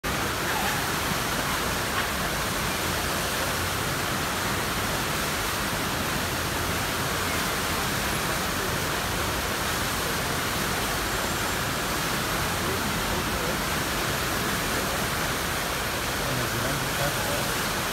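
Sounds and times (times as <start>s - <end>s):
whitewater rushing: 0.0s - 17.9s.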